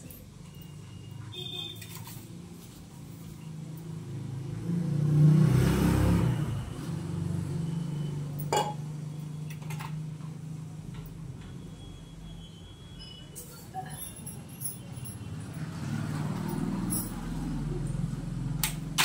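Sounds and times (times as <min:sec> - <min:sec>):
motor vehicle passing: 0:03.9 - 0:08.4, 0:15.2 - 0:19.0.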